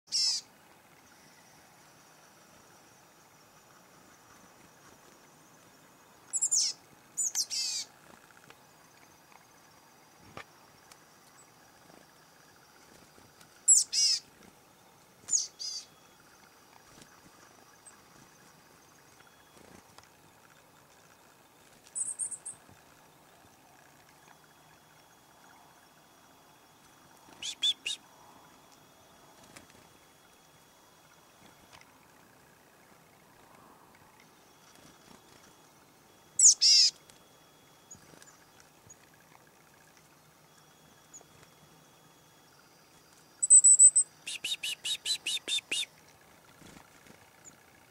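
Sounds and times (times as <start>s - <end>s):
chickadees calling: 0.1s - 0.5s, 6.3s - 7.9s, 13.6s - 14.4s, 15.2s - 15.9s, 27.3s - 28.0s, 36.4s - 37.0s, 43.4s - 45.9s.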